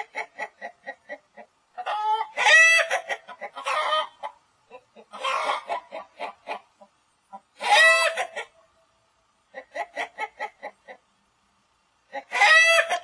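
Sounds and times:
chickens clucking: 0:00.0 - 0:08.8, 0:09.4 - 0:11.2, 0:12.0 - 0:13.0
chicken squawking: 0:00.1 - 0:06.7, 0:07.3 - 0:08.6, 0:12.1 - 0:13.0.

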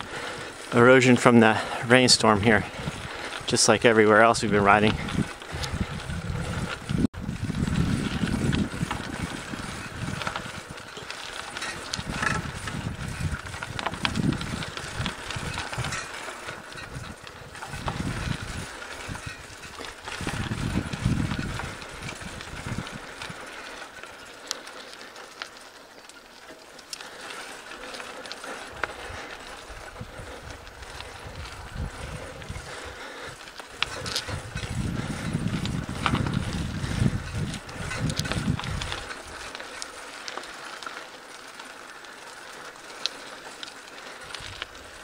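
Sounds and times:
wind buffeting microphone: 0:00.0 - 0:24.1, 0:27.4 - 0:40.8, 0:44.0 - 0:45.0
bike rattles and clicks: 0:00.0 - 0:45.0
bike tyres on dirt: 0:00.0 - 0:45.0.

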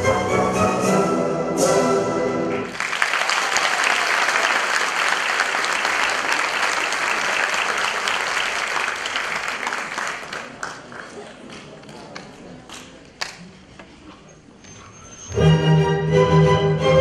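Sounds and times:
ballet music: 0:00.0 - 0:02.7, 0:15.1 - 0:17.0
audience applauding: 0:02.7 - 0:13.4.

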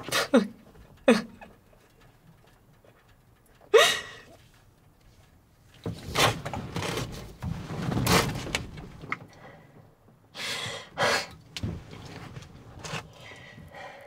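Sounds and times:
person sobbing: 0:00.1 - 0:01.5, 0:03.7 - 0:04.3.

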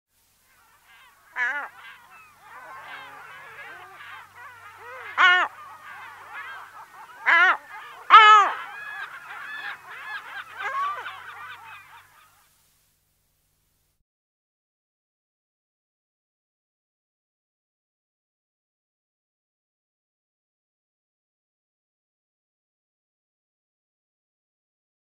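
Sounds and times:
many gulls calling: 0:00.5 - 0:12.4
gull calling close up: 0:00.5 - 0:12.5.

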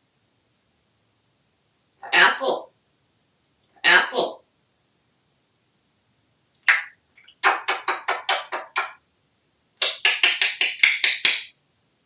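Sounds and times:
parrot vocalizing: 0:02.0 - 0:02.7, 0:03.8 - 0:04.4, 0:06.7 - 0:09.0, 0:09.8 - 0:11.1.

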